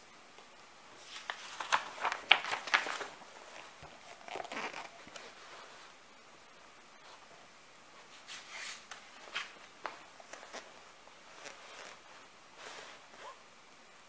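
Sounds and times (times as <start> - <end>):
book rustling and clicking: 1.0 - 5.4, 8.3 - 10.7.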